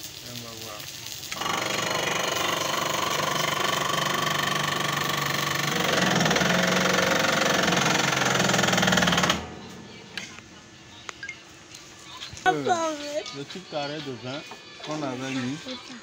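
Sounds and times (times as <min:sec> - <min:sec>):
hydraulic press electric motor: 0:01.3 - 0:10.4.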